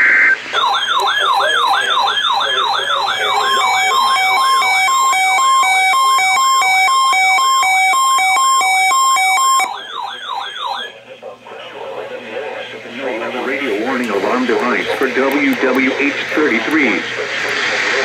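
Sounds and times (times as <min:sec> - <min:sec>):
siren-like whooping alarm: 0:00.0 - 0:10.9
two-pitch alarm beeps: 0:00.6 - 0:10.9.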